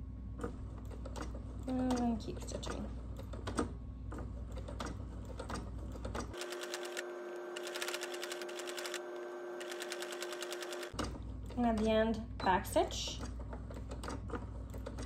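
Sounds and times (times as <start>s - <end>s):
sewing machine stitching: 0.4s - 11.9s.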